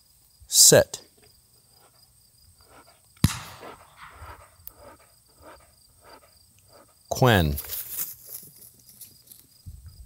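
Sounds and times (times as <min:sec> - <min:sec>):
faint scattered sounds: 0:01.1 - 0:09.6
sharp bang: 0:03.2 - 0:04.4.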